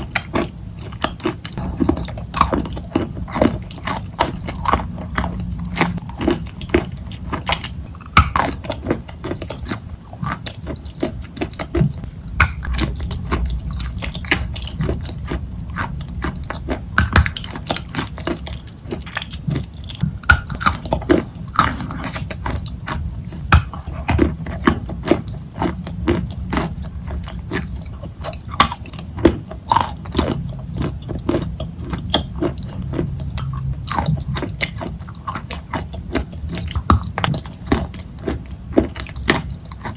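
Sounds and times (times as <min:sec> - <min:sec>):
sticky chewing mouth sounds: 0:00.0 - 0:39.9.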